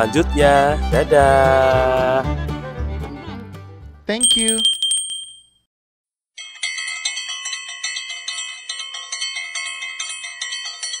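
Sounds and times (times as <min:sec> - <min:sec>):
bright bell-like chimes: 0:04.2 - 0:05.5, 0:06.4 - 0:11.0.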